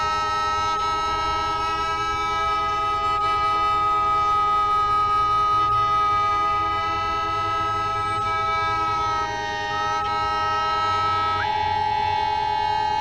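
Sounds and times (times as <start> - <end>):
band playing drone-like chord: 0.0 - 13.0.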